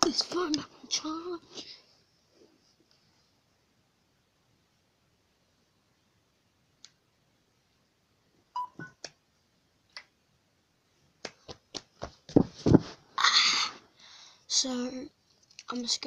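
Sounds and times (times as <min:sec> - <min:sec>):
brief beep: 0:08.6 - 0:09.0
knocks and thuds of handling: 0:12.0 - 0:13.0.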